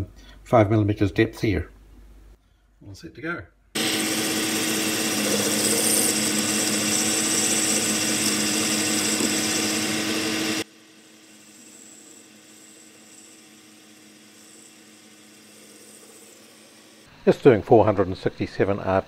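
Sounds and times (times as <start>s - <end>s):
lathe tool cutting metal: 3.8s - 17.1s
motor whine: 3.8s - 17.1s.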